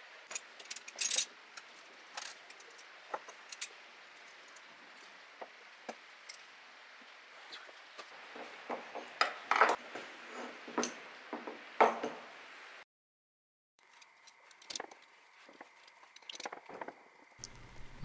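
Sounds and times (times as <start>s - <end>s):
metal parts clicking and clacking: 0.2s - 3.8s, 13.8s - 15.0s, 15.7s - 17.6s.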